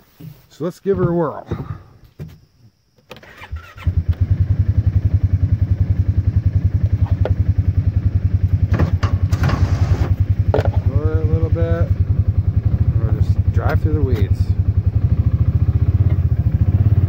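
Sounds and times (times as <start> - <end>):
utility vehicle engine throbbing: 4.0 - 17.0.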